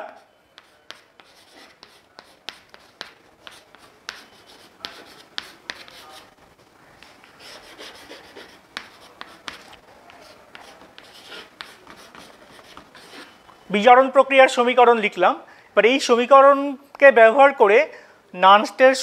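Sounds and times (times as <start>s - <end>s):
chalk scratching on chalkboard: 0.1s - 6.3s, 7.0s - 13.4s
chalk tapping on board: 0.6s - 6.2s, 7.0s - 13.3s.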